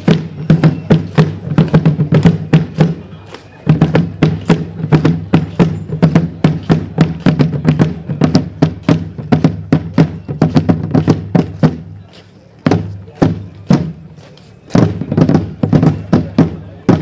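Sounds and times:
field drums playing cadence: 0.0s - 12.0s, 12.6s - 17.0s.

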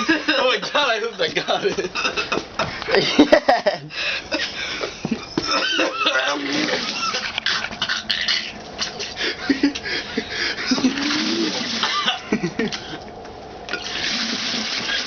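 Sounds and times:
man gagging and retching: 5.5s - 9.2s, 10.7s - 13.1s
liquid splashing into bucket: 13.7s - 15.0s.

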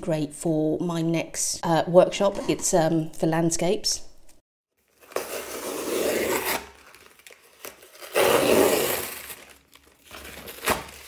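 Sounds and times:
blade slitting packing tape: 4.9s - 11.0s.

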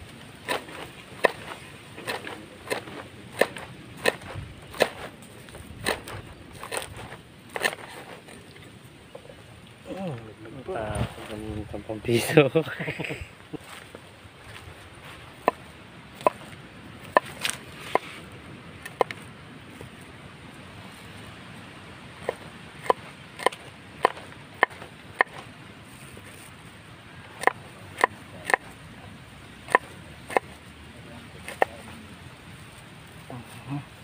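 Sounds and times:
knife chopping on wooden board: 0.5s - 5.1s, 5.8s - 8.2s, 22.2s - 25.4s, 31.4s - 31.8s.

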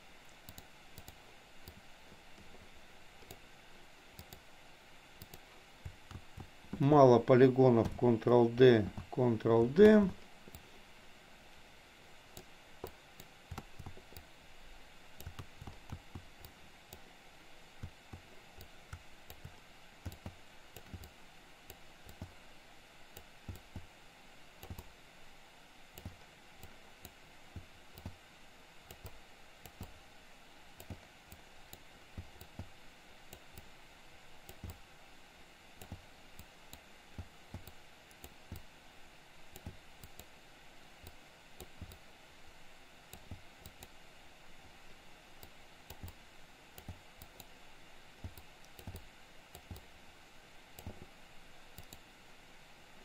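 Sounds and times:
low room hiss: 0.0s - 53.0s
mouse and keyboard clicks: 5.2s - 6.9s, 12.4s - 14.3s, 15.2s - 17.0s, 17.8s - 22.4s, 24.6s - 24.9s, 45.4s - 46.2s, 46.8s - 47.5s, 48.2s - 49.9s, 51.7s - 52.0s.

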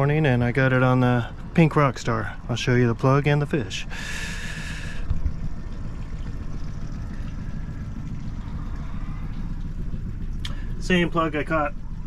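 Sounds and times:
boat motor idling: 0.0s - 12.0s.

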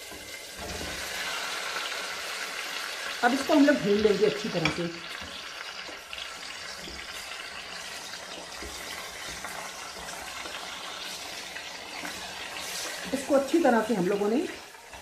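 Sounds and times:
chicken sizzling in hot oil: 0.0s - 15.0s
spatula moving food in pot: 3.6s - 15.0s.

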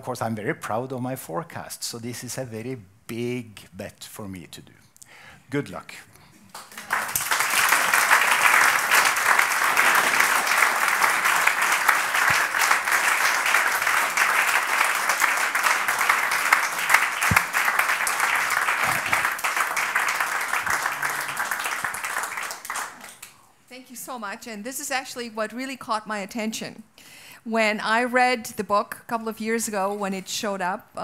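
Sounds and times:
audience applauding: 6.5s - 23.3s.

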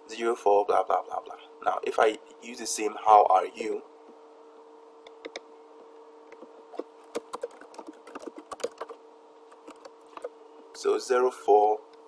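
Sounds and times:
faint steady hum: 0.0s - 12.0s
keyboard key clicks: 5.1s - 5.5s.

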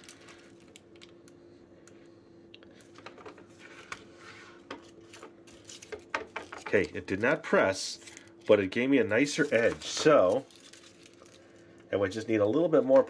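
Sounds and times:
faint steady hum: 0.0s - 13.0s
foil rustling: 7.9s - 11.7s.

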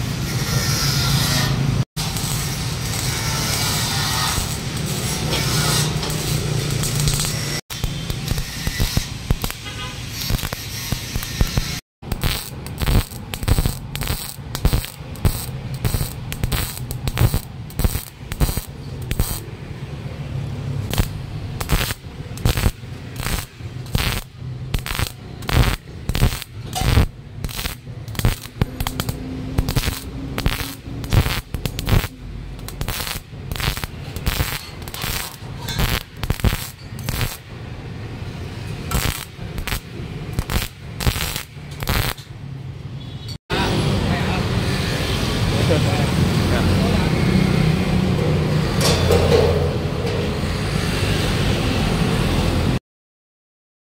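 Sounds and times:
welding arc crackling: 1.1s - 42.4s.

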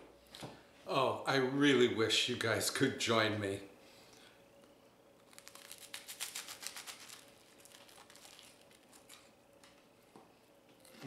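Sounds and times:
crisp bread crunching: 5.2s - 9.4s.

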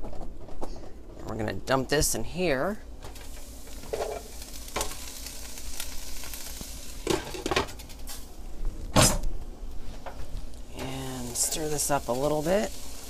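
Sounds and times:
carrots sizzling in a skillet: 3.0s - 8.4s, 10.4s - 13.0s.

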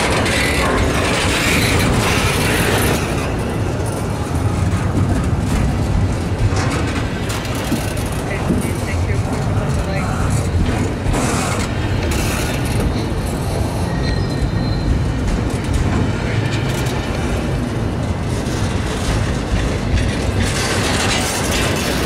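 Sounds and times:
train wheels rumbling on rails: 0.0s - 22.0s
faint wheel squeals: 13.8s - 15.0s.

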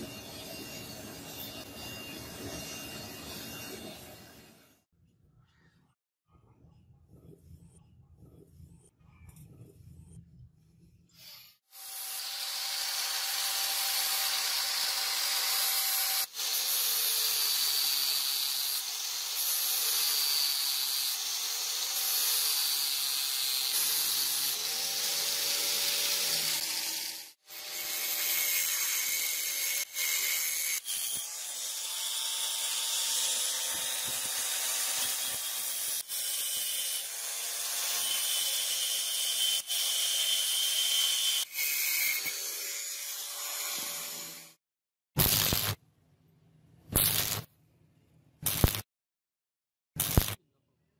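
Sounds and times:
angle grinder grinding steel: 11.1s - 44.6s.

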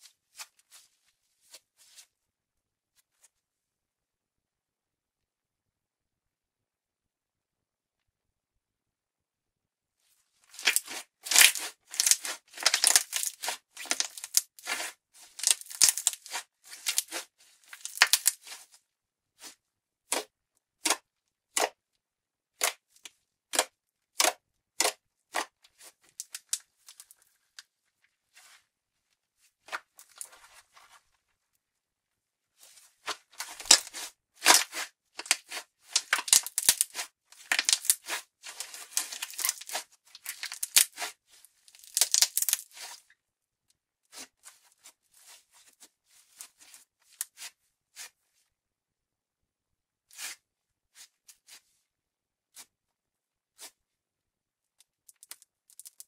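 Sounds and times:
slime crackling and popping: 10.6s - 18.6s, 33.4s - 41.1s, 41.7s - 43.0s.

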